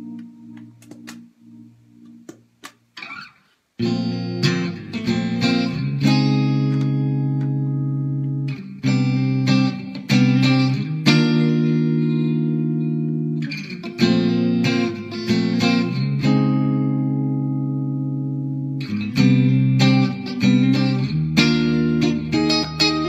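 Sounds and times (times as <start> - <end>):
clean electric guitar: 0.0 - 23.0.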